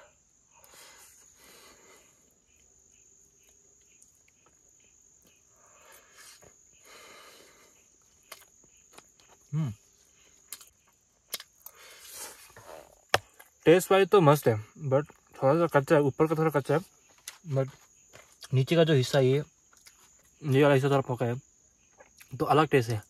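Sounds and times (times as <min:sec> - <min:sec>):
crickets droning: 0:00.0 - 0:23.0
soft chewing: 0:02.2 - 0:06.7, 0:07.8 - 0:13.6, 0:19.5 - 0:20.5, 0:21.8 - 0:22.4.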